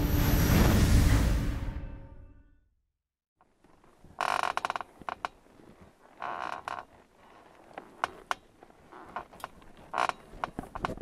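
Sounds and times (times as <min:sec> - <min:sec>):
metal bed squeaking: 0:08.0 - 0:11.0.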